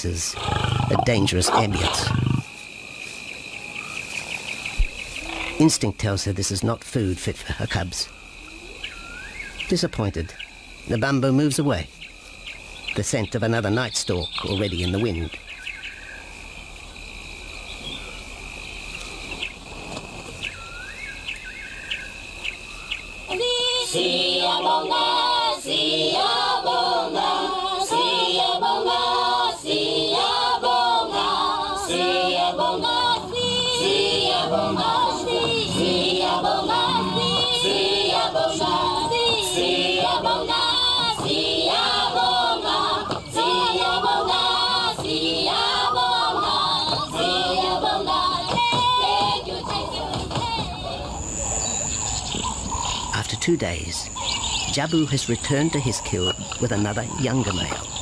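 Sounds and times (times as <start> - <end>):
choir singing loudly: 23.3 - 51.2.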